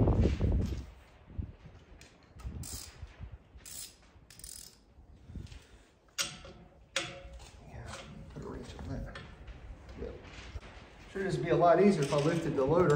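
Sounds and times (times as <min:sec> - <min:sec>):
socket ratchet clicking: 0:02.4 - 0:02.9, 0:03.7 - 0:04.8
metal tools clinking: 0:06.1 - 0:09.4, 0:12.0 - 0:12.9.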